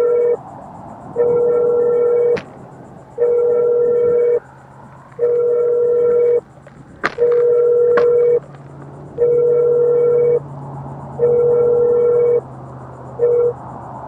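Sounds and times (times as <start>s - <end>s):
electronic beeping alarm: 0.0s - 0.4s, 1.1s - 2.4s, 3.1s - 4.5s, 5.1s - 6.5s, 7.1s - 8.5s, 9.1s - 10.5s, 11.1s - 12.5s, 13.2s - 13.6s.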